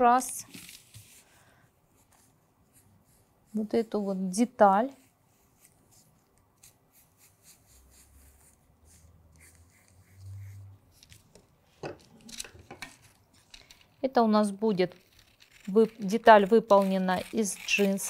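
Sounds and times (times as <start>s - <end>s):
marker scratching on paper: 2.0s - 11.2s, 15.7s - 18.0s.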